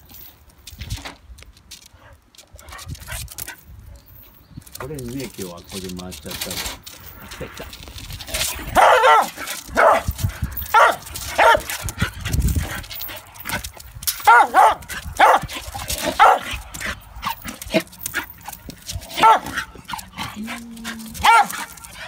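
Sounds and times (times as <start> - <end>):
dog barking: 8.8 - 10.1, 10.7 - 11.7, 14.2 - 15.5, 16.2 - 16.6, 19.2 - 19.7, 21.2 - 21.8.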